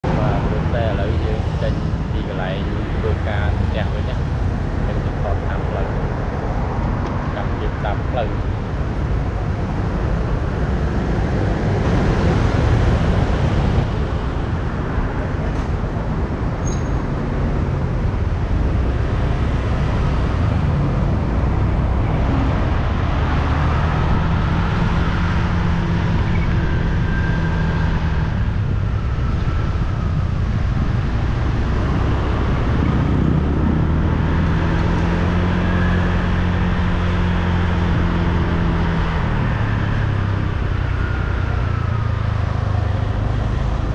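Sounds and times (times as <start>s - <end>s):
road noise rushing: 0.0s - 43.9s.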